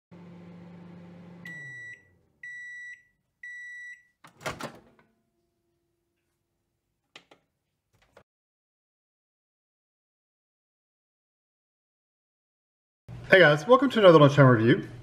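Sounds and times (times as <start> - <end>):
microwave oven humming: 0.1 - 3.8
microwave beeps: 1.2 - 4.2
microwave door clunking open: 4.3 - 5.0.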